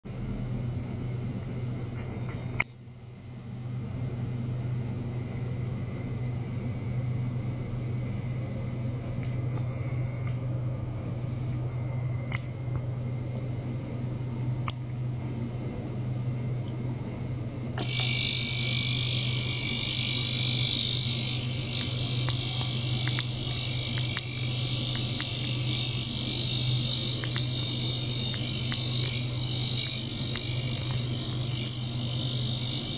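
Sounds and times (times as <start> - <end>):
ultrasonic cleaner low hum: 0.1 - 32.9
whining tones: 17.8 - 32.9.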